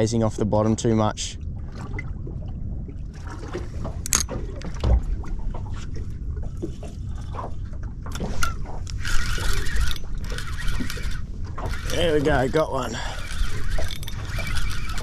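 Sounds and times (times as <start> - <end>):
water lapping against boat hull: 0.0 - 15.0
water splashing: 1.3 - 15.0
fishing rod knocks and clicks: 3.8 - 5.6, 7.3 - 12.6, 13.2 - 15.0.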